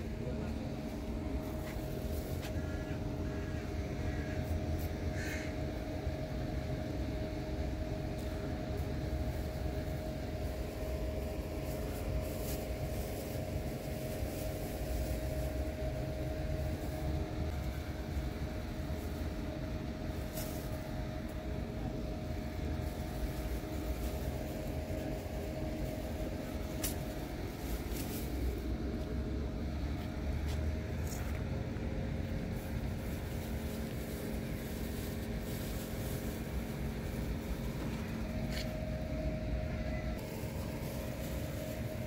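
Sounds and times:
droning hum: 0.0 - 42.0.

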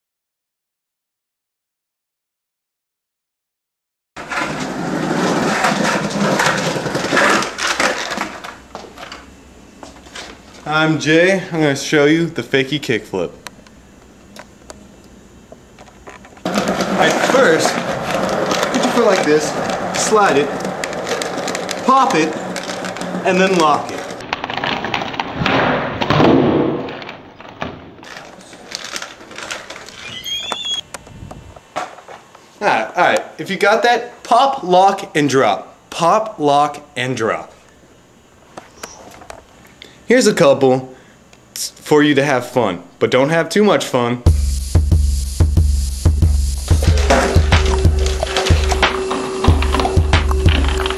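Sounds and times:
skateboard rolling on tiles: 4.2 - 9.1, 16.3 - 25.5, 46.7 - 50.9
short high squeak: 30.0 - 30.9.

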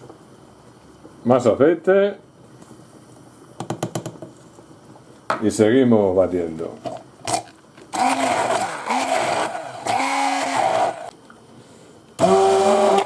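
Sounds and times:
electric hand blender motor: 7.9 - 11.1, 12.2 - 13.0.

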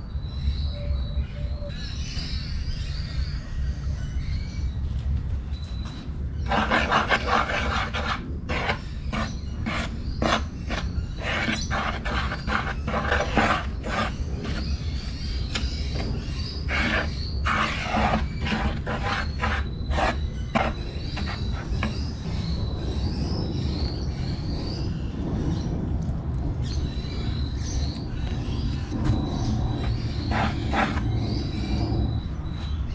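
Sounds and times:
metal spoon scraping wooden bowl: 6.5 - 14.8, 16.7 - 22.0, 29.8 - 31.4.

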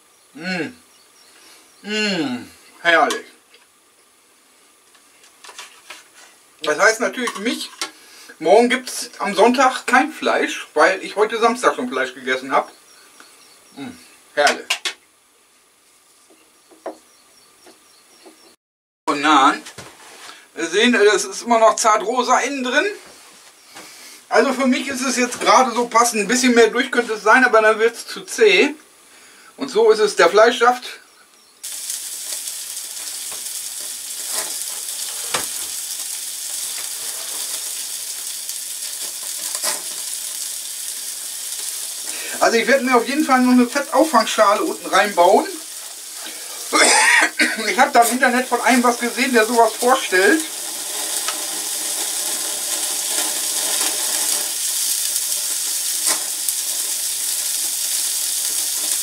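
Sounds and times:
meat sizzling on grill: 0.0 - 18.5, 23.5 - 59.0.

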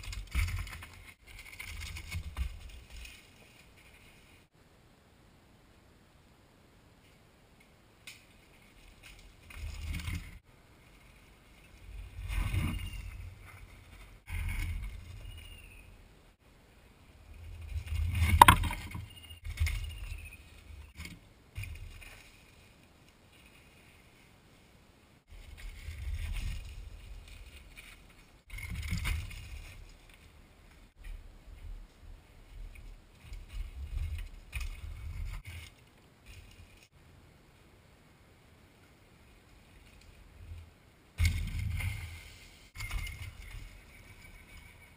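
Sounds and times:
bike tyres over dirt and leaves: 0.0 - 4.5, 8.2 - 16.0, 25.3 - 37.0, 38.7 - 44.9.

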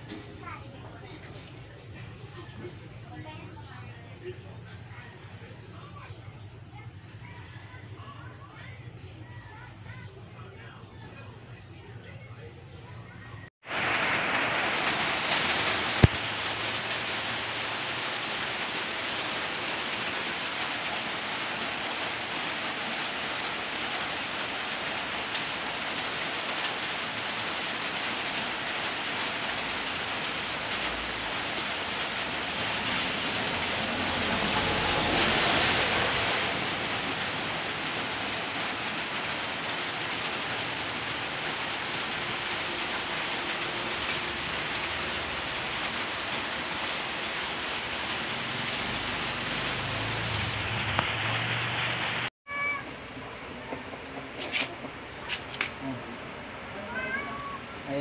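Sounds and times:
steady rushing noise: 13.6 - 28.0.

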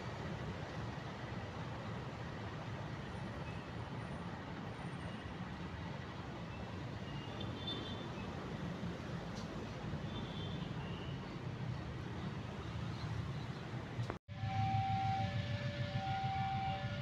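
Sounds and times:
locomotive rumbling: 13.7 - 17.0.

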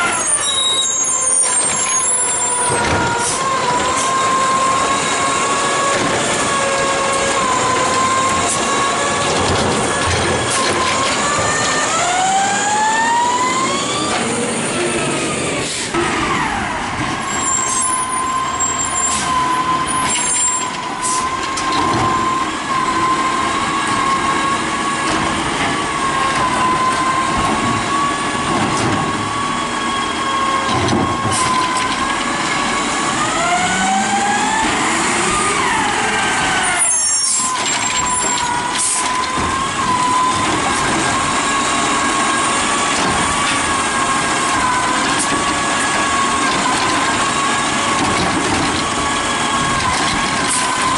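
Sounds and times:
garbage truck whining: 0.0 - 50.9
truck engine revving: 1.5 - 20.4, 21.0 - 50.9
air brake hisses: 15.6 - 16.0.

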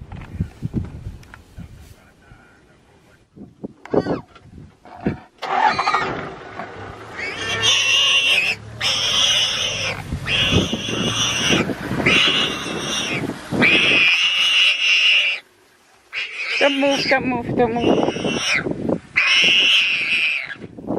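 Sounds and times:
warthog squealing: 5.0 - 6.3, 7.0 - 15.4, 16.1 - 20.7.

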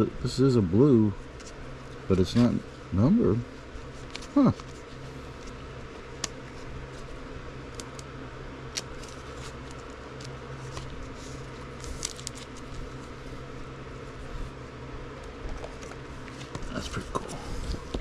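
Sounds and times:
steady low hum: 0.0 - 18.0
plastic card sleeves clicking and rustling: 11.8 - 12.8.

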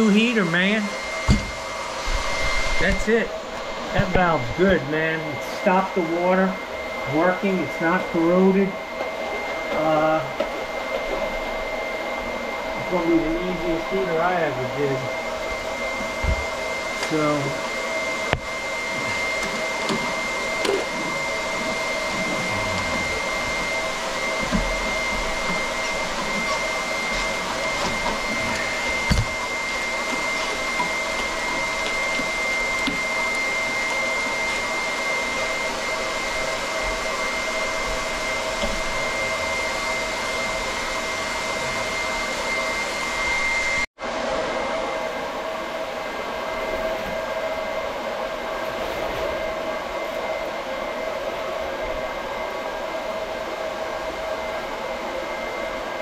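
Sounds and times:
small motor whining: 18.0 - 36.2.

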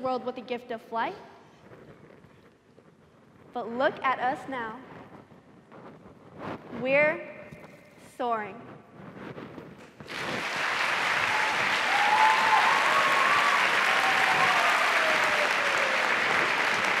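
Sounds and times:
audience applauding: 10.1 - 17.0.

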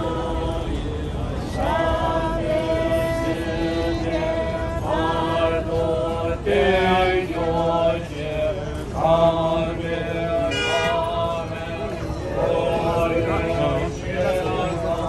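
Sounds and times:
group chanting prayer: 0.0 - 15.0.

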